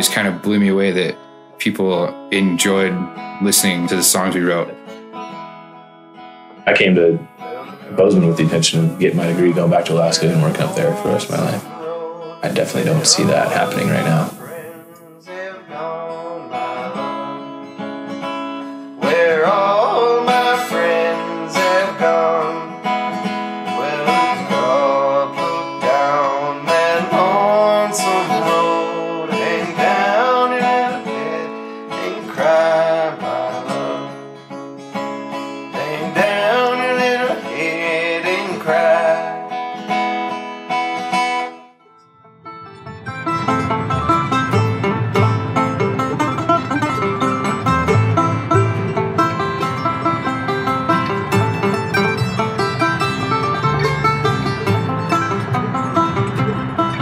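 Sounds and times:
strummed acoustic guitar: 0:00.0 - 0:57.0
bending melody line: 0:06.6 - 0:15.1, 0:41.8 - 0:57.0.

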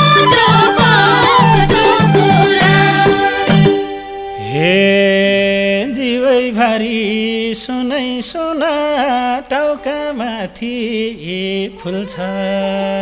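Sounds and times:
folk melody with pitch bends: 0:00.0 - 0:05.4.

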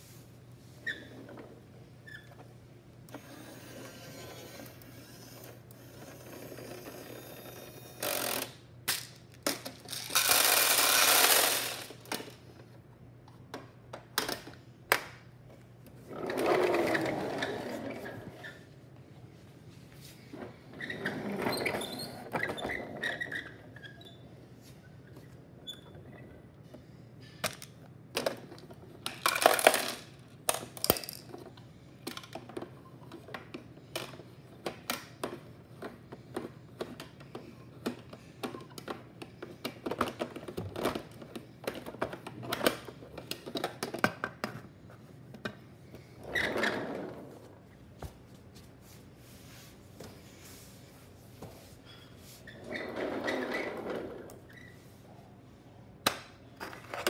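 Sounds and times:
toy scraping: 0:03.2 - 0:08.6, 0:09.9 - 0:12.0
toys clattering: 0:04.6 - 0:12.4, 0:27.4 - 0:39.0
plastic toys clicking on wooden floor: 0:06.0 - 0:12.4, 0:27.4 - 0:44.6.

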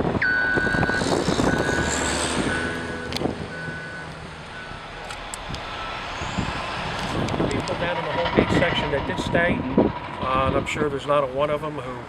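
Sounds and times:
diesel engine running: 0:00.0 - 0:12.0
backup alarm beeping: 0:00.2 - 0:04.9, 0:05.7 - 0:06.4.

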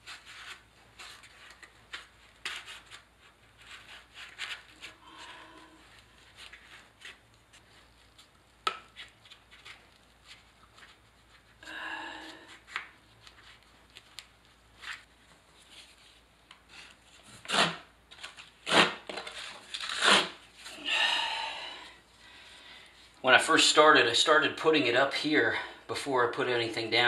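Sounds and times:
hand tool scraping membrane: 0:16.7 - 0:17.9, 0:18.6 - 0:20.8.

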